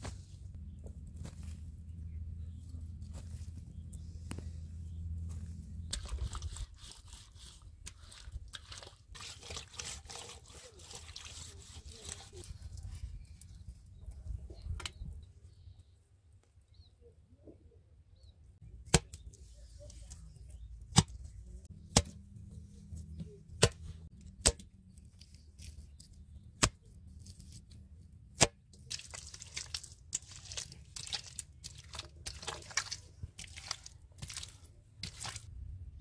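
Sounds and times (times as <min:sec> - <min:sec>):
wet clay squelching: 0:01.2 - 0:14.0, 0:18.8 - 0:35.5
hands slapping wet clay: 0:28.4 - 0:35.4.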